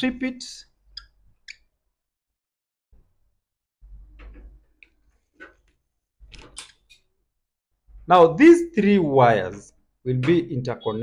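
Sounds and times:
wire strippers clicking and scraping: 3.9s - 7.1s.

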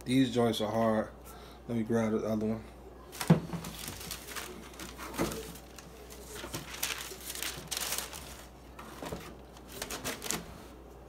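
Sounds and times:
tissue paper rustling and crinkling: 3.1s - 10.6s.

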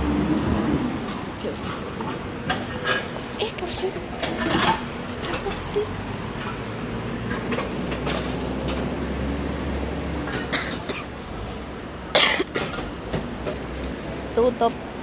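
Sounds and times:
street traffic rumble: 0.0s - 15.0s
person coughing: 12.2s - 12.8s.

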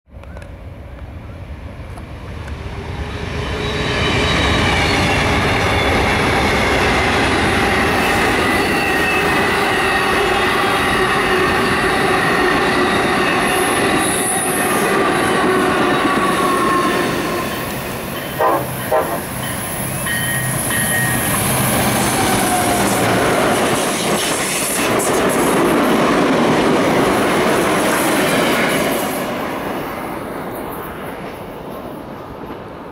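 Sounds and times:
train wheels rolling on rail: 0.1s - 32.9s
high wheel squeal: 3.4s - 6.8s
train horn blasts: 18.3s - 19.4s.

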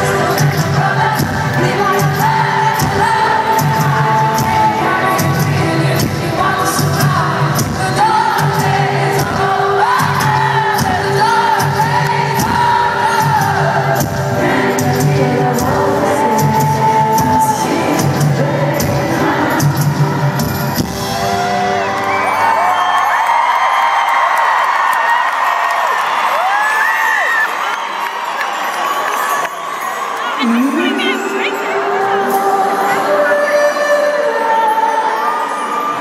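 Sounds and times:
woman singing lead vocal: 0.0s - 20.8s, 30.4s - 36.0s
live rock band playing: 0.0s - 22.6s
crowd whooping: 21.0s - 31.5s.

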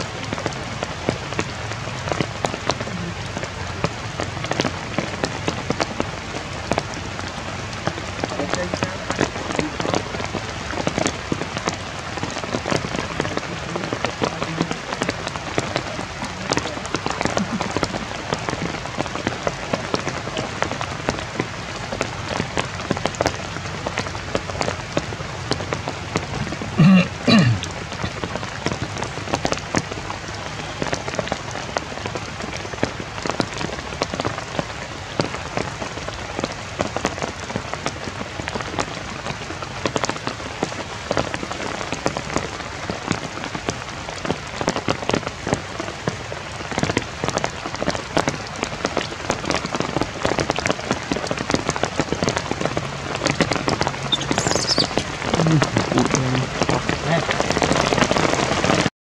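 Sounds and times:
rain patter: 0.0s - 58.9s
high falling squeal: 54.1s - 55.1s.

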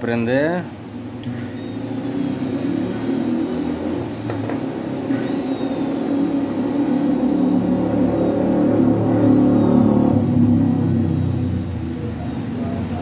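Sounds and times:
blender motor whirring: 1.2s - 11.0s.

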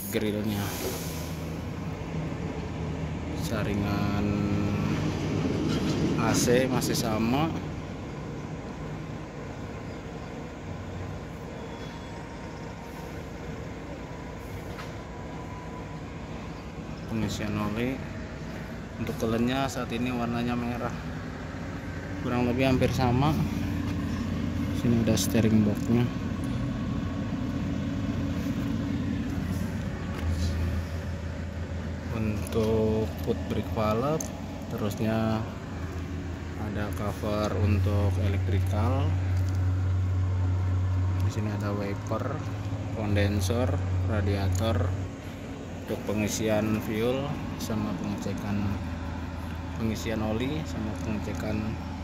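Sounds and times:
faint steady tones: 0.0s - 52.0s
vehicle engine idling: 0.0s - 52.0s.

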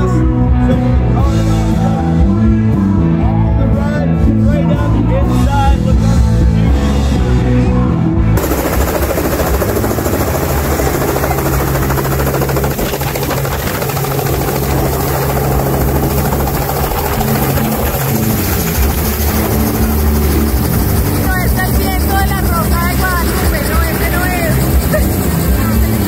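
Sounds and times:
helicopter rotor drone: 8.3s - 26.0s.

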